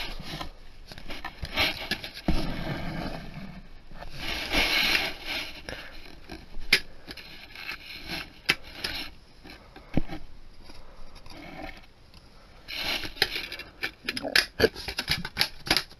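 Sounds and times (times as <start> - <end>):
plastic disc case scraping: 12.7 - 15.9.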